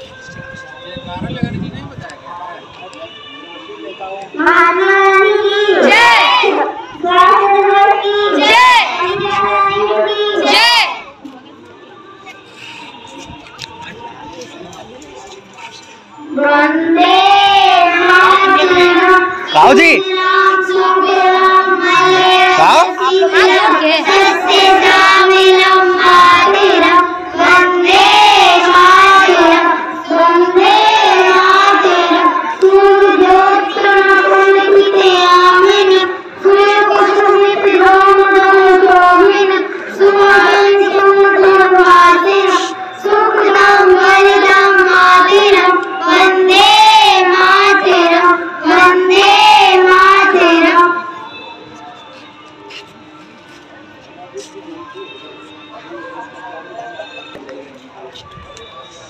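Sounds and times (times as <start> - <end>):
child singing: 4.4 - 11.0, 16.3 - 51.4.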